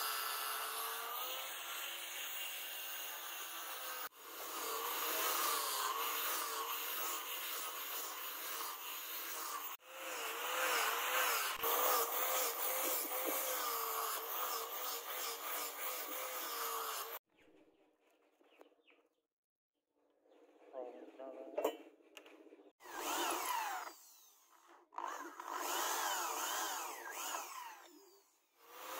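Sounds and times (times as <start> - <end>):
angle grinder sanding wood: 0.0 - 17.2.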